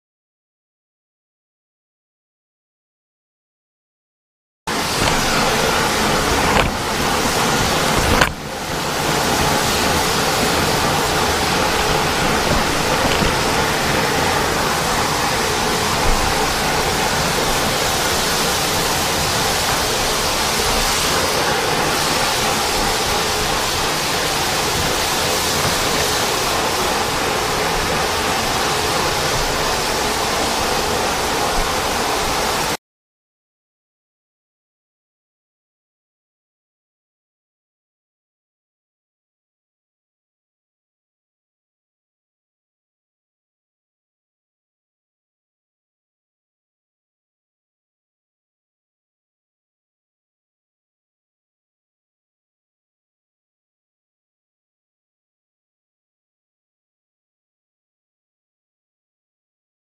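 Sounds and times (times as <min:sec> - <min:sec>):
floor buffer sanding: 0:04.7 - 0:32.8.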